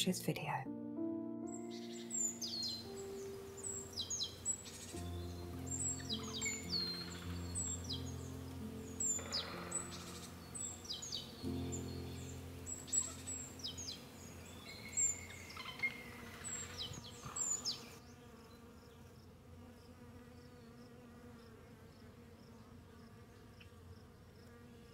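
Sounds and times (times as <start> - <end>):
small birds chirping: 1.5 - 18.8
thin insect buzz: 1.6 - 24.9.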